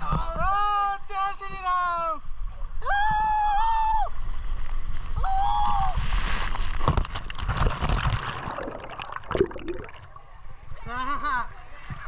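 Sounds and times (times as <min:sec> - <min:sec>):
water rushing down a slide: 0:04.6 - 0:10.2.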